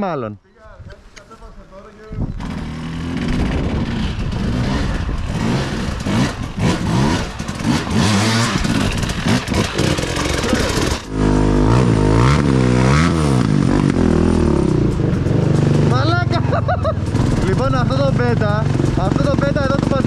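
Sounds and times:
motorcycle engine revving: 2.2s - 20.0s.

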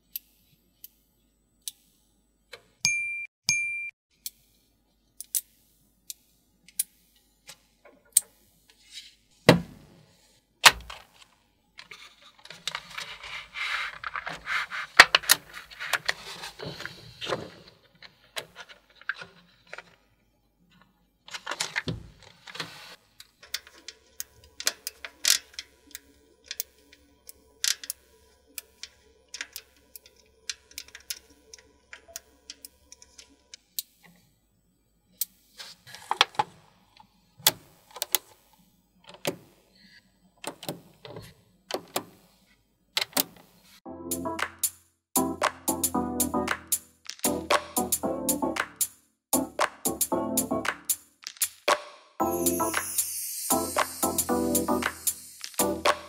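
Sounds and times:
crinkly rustling: 11.8s - 20.1s
magnet balls clicking together: 46.7s - 47.8s, 50.7s - 51.8s, 52.5s - 56.0s.

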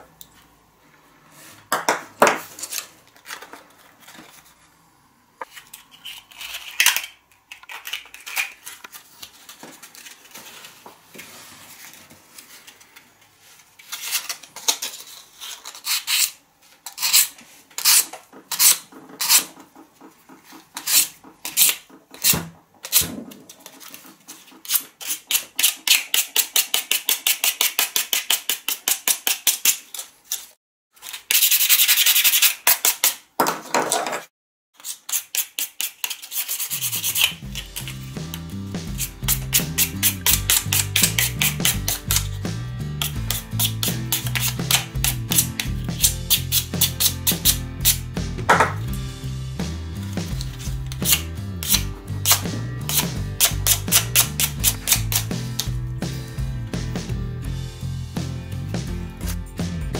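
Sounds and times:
sandpaper scratching wood: 15.0s - 19.6s, 20.7s - 23.0s, 23.7s - 29.9s, 31.3s - 33.0s, 34.8s - 48.1s, 50.2s - 55.7s.

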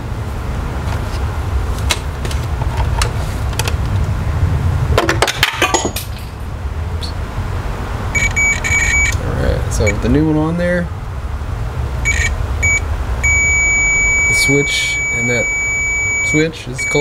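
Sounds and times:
steady low rumble: 0.0s - 5.0s, 5.9s - 17.0s
multimeter continuity beep: 8.2s - 9.2s, 9.8s - 10.0s, 12.1s - 17.0s.

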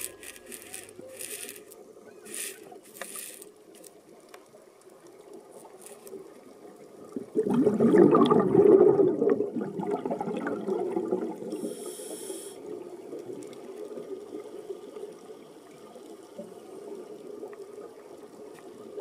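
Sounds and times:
brief high hiss: 0.0s - 3.5s
muffled underwater bubbling: 7.0s - 13.4s.

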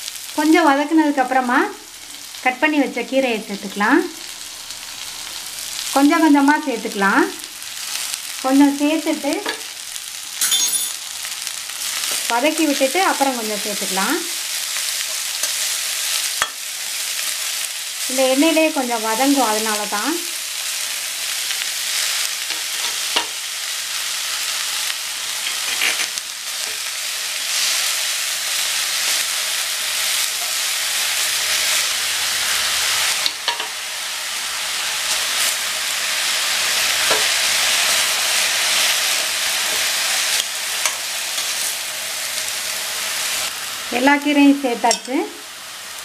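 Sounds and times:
leaves sizzling in hot oil: 0.0s - 46.0s
spatula clinking and scraping pan: 10.4s - 11.0s, 15.0s - 16.7s, 25.4s - 26.9s, 39.7s - 41.8s, 44.9s - 45.2s.

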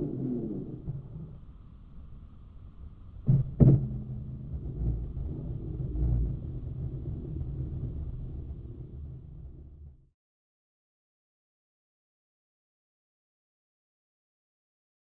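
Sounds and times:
low rumble: 0.0s - 10.1s.

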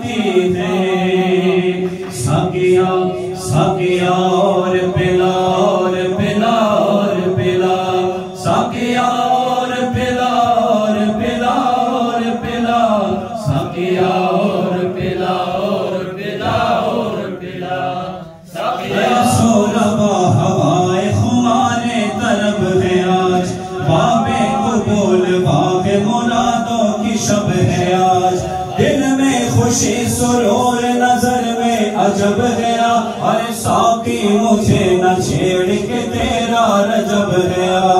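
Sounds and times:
man singing into a microphone: 0.0s - 15.3s, 19.0s - 37.9s.

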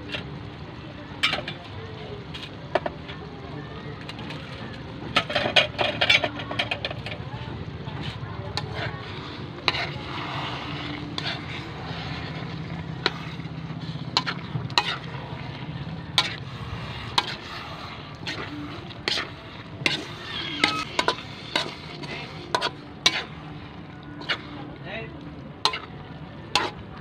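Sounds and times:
metal spatula scraping wok: 0.0s - 3.4s, 4.0s - 24.7s, 25.6s - 26.8s.

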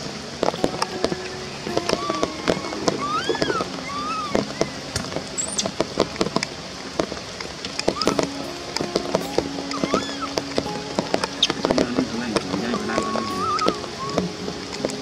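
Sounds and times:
baby monkey whimpering: 2.0s - 4.8s, 9.7s - 10.3s, 13.0s - 14.2s.

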